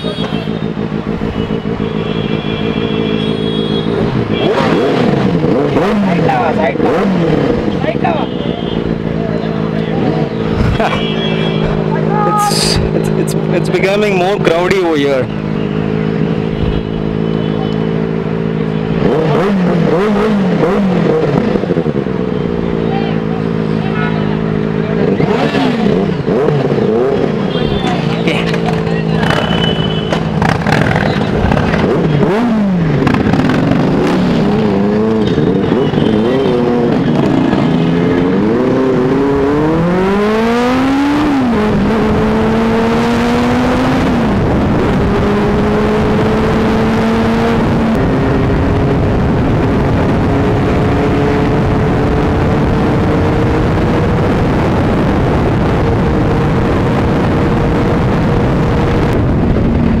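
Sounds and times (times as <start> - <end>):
motorcycle engine revving: 0.0 - 60.0
wind rushing over microphone: 47.5 - 60.0.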